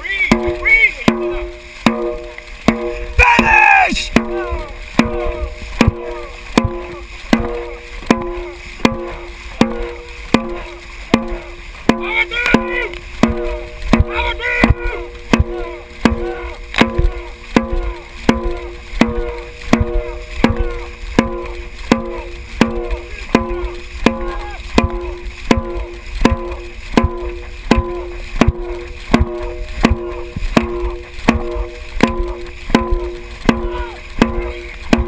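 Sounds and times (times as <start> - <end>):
drum beaten steadily: 0.0 - 35.0
water rushing along hull: 0.0 - 35.0
crew shouting: 3.2 - 5.5, 12.0 - 13.0, 14.1 - 18.7, 23.1 - 24.7, 33.6 - 34.1.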